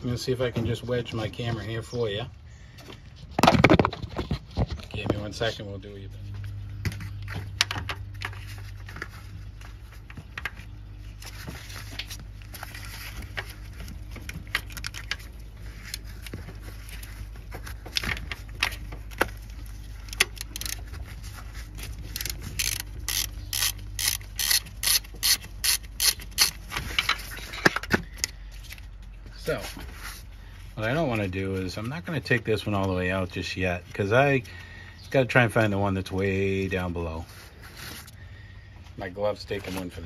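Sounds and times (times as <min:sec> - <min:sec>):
hand ratchet clicking: 0:20.1 - 0:20.9, 0:22.1 - 0:26.6.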